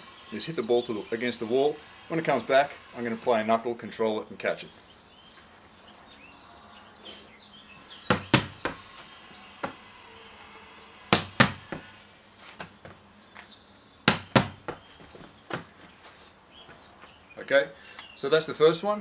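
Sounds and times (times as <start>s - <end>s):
ball knocking off wall: 8.1s - 8.8s, 11.1s - 11.9s, 14.1s - 14.8s
hand slapping volleyball: 8.1s - 8.8s, 11.1s - 11.8s, 14.1s - 15.7s.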